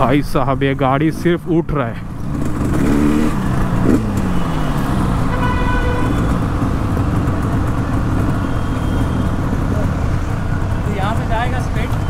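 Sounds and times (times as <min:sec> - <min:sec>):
traffic noise: 0:00.0 - 0:12.0
vehicle horn: 0:04.6 - 0:06.4
two-stroke motorcycle engine idling: 0:05.2 - 0:12.0.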